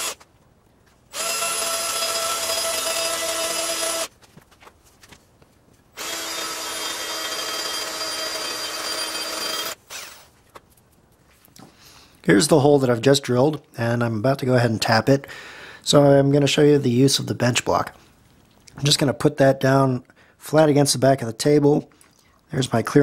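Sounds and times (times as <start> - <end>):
cordless drill drilling: 0.0 - 0.2, 1.1 - 4.1, 6.0 - 10.3.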